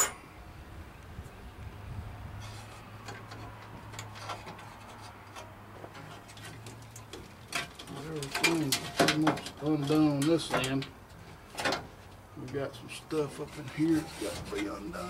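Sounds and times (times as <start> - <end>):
wires and connectors rattling: 3.0 - 12.3.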